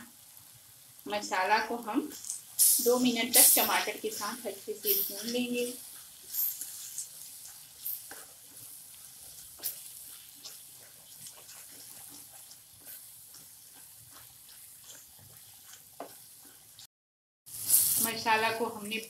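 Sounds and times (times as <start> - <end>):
masala sizzling in a pan: 0.0 - 16.9, 17.5 - 19.0
spatula scraping and tapping pan: 4.8 - 16.9.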